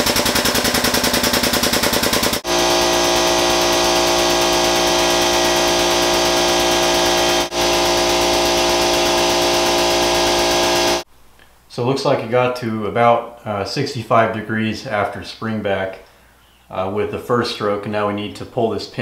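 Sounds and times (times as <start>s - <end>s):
air pump chattering and buzzing: 0.0s - 11.1s.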